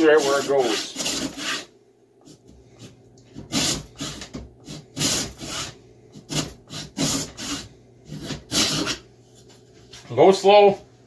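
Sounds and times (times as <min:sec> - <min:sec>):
hacksaw cutting wood: 0:00.0 - 0:01.7, 0:03.4 - 0:09.0.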